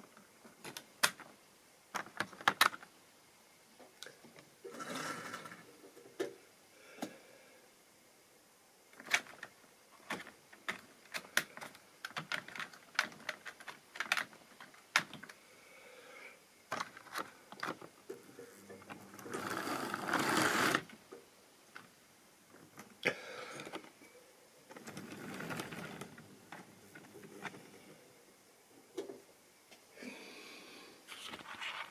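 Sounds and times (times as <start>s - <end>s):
model train wheels clicking: 19.2s - 20.9s.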